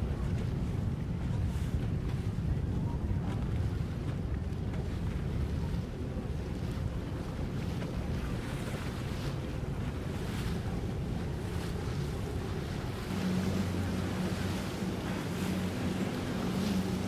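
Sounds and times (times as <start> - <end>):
water lapping: 0.0 - 17.0
wind on microphone: 0.0 - 17.0
boat motors running: 3.7 - 17.0
engine hum: 8.6 - 17.0.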